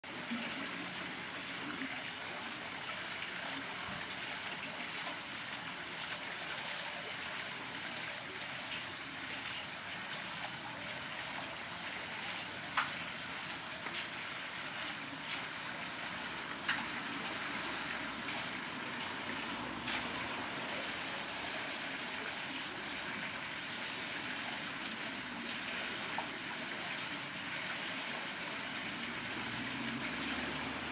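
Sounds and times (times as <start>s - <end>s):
water splashing off wheel: 12.0s - 21.5s.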